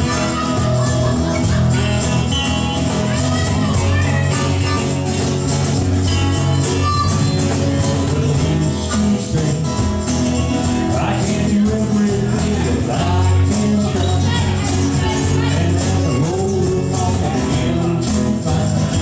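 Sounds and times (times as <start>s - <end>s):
harmonica: 0.0s - 9.1s
jingling hand percussion: 0.0s - 19.0s
live acoustic band playing: 0.0s - 19.0s.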